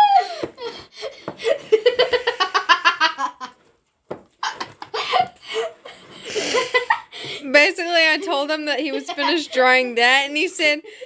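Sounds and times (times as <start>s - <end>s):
boy laughing hard: 0.0s - 3.6s, 4.4s - 7.2s, 8.8s - 9.6s.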